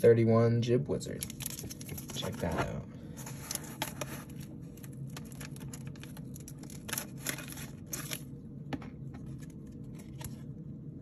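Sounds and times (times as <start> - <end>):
plastic wrap crinkling: 1.1 - 2.5, 3.2 - 8.3
cardboard rustling: 1.4 - 8.2.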